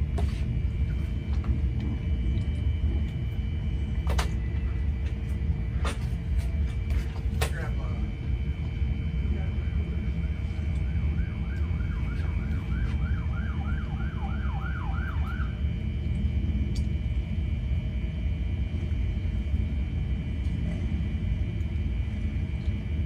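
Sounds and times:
faint siren-like yelp: 0:09.4 - 0:15.7.

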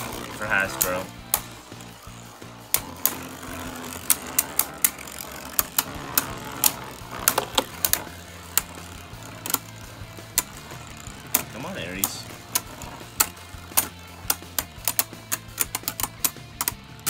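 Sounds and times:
low whir of spinning tops: 0:00.0 - 0:17.0
spinning tops clacking together: 0:00.0 - 0:17.0.

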